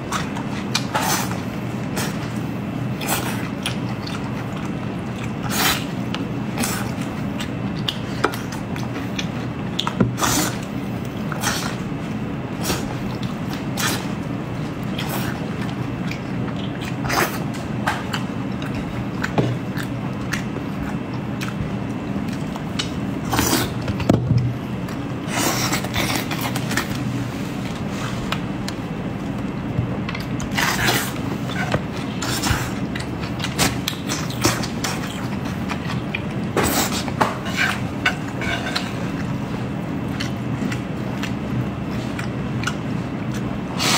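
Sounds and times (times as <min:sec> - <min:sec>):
steady low hum: 0:00.0 - 0:43.9
wet chewing and lip smacks: 0:17.9 - 0:23.0, 0:40.0 - 0:43.5.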